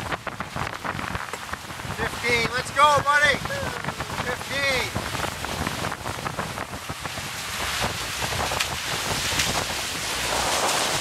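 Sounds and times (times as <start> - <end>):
wind on microphone: 0.0 - 11.0
water hissing past hulls: 9.7 - 11.0.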